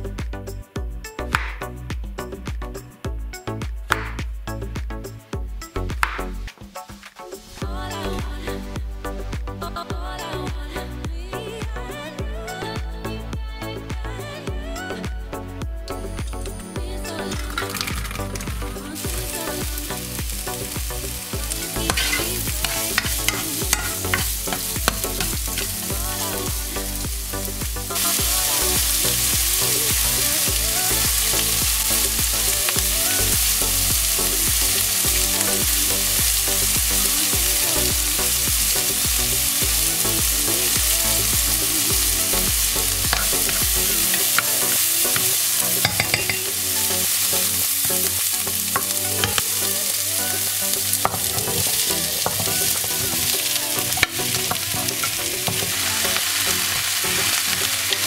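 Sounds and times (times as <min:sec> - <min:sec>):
vegetables sizzling in oil: 0:17.3 - 0:58.0
spatula stirring in pot: 0:21.4 - 0:25.8.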